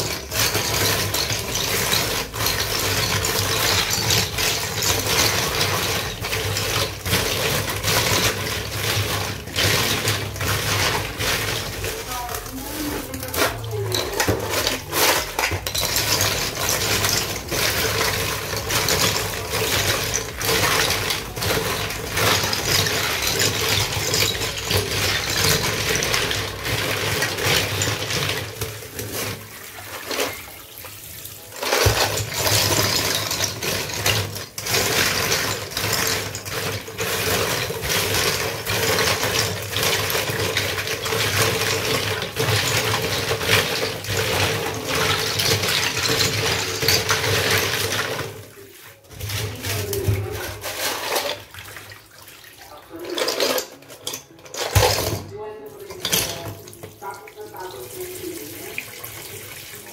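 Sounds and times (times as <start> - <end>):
water splashing: 47.2 - 54.1, 55.8 - 59.9.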